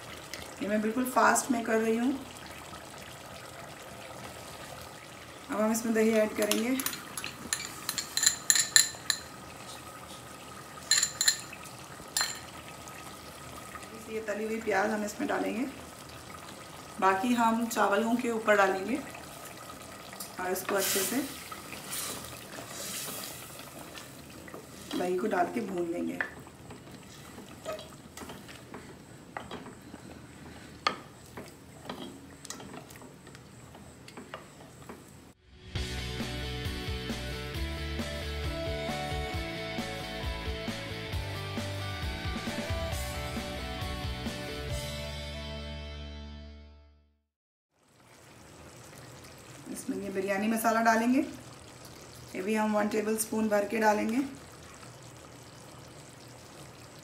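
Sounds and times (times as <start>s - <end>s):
metal spoon clinking on glass bowl: 6.5s - 9.3s, 10.9s - 11.5s, 12.2s - 12.5s.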